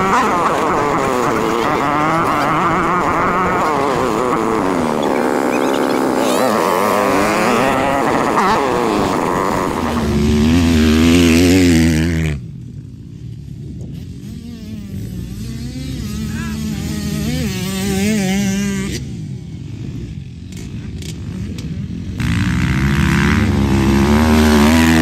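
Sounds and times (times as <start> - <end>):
dirt bike engines revving: 0.0 - 25.0.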